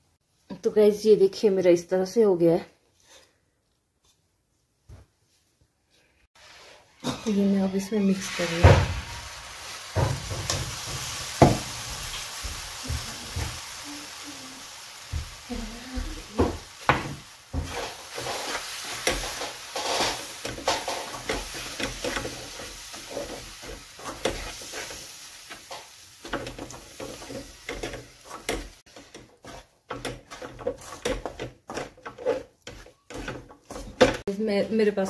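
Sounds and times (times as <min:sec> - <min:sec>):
wooden spatula scraping metal pan: 0:15.5 - 0:35.0.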